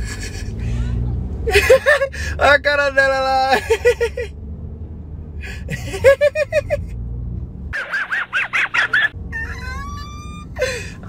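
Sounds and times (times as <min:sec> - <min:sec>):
low car rumble: 0:00.0 - 0:11.0
rooster crowing: 0:09.4 - 0:10.4.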